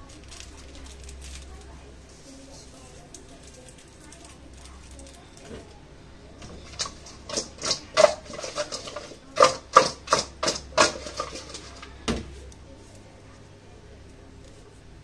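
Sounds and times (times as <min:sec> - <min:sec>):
chicken pieces clattering in metal bowl: 0:06.4 - 0:12.1.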